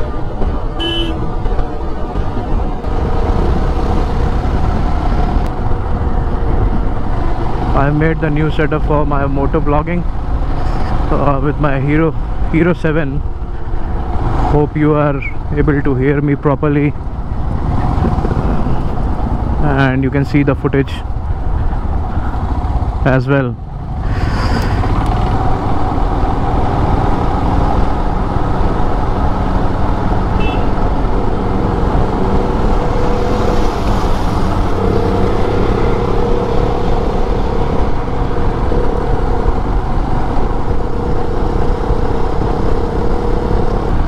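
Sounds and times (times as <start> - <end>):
wind rumble on microphone: 0.0 - 11.2, 12.1 - 44.0
road traffic: 0.0 - 44.0
steady drone: 30.0 - 44.0.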